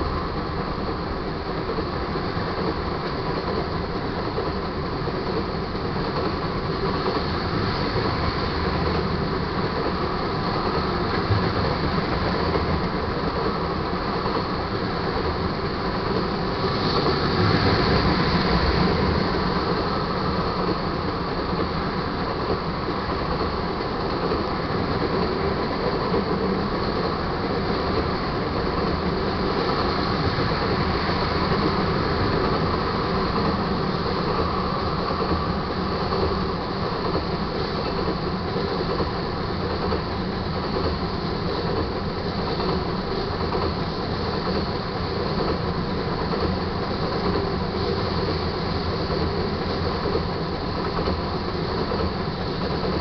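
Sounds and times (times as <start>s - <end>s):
train wheels rolling on rails: 0.0s - 53.0s.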